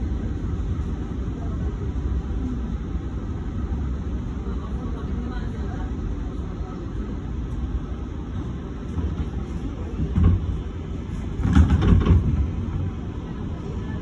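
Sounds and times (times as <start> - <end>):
train rumble: 0.0 - 14.0
train clunk: 8.8 - 13.6
train knocks: 8.9 - 13.1.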